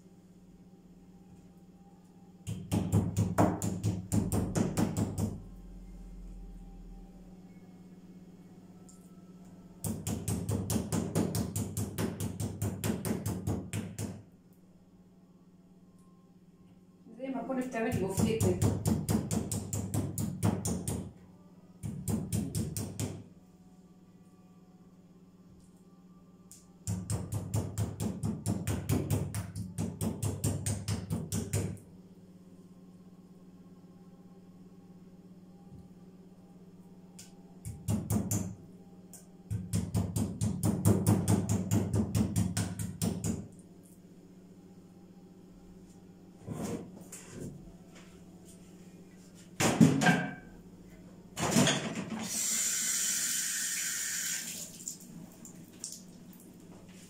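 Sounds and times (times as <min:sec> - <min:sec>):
meat mallet pounding chicken: 0:02.6 - 0:05.4, 0:09.8 - 0:14.2, 0:18.0 - 0:21.1, 0:39.5 - 0:43.4.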